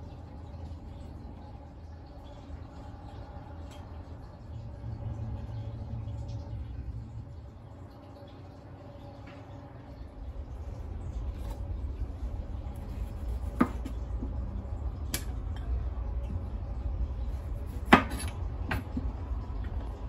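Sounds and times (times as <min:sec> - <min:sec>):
low steady rumble: 0:00.0 - 0:20.0
knife slicing tomatoes: 0:12.8 - 0:14.0, 0:17.4 - 0:18.4
knife knocking on cutting board: 0:13.5 - 0:14.0.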